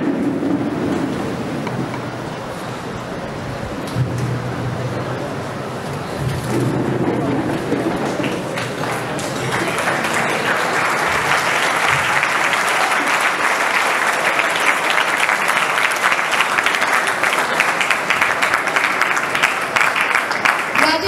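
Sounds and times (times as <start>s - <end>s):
audience applauding: 5.9s - 21.0s.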